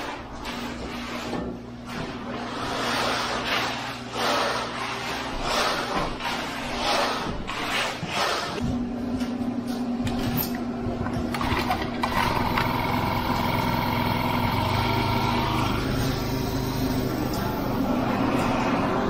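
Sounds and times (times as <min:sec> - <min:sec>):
small gas engine running: 0:11.3 - 0:18.0.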